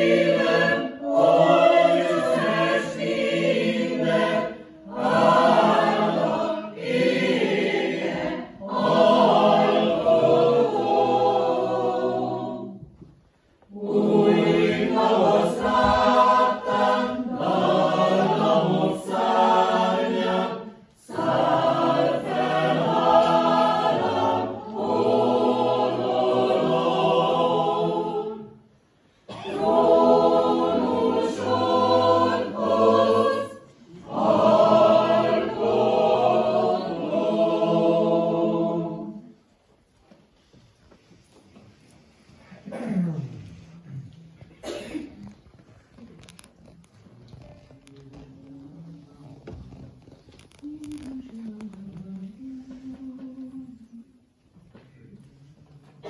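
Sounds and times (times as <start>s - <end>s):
mixed choir singing a cappella: 0.0s - 13.1s, 13.7s - 39.9s, 50.6s - 56.0s.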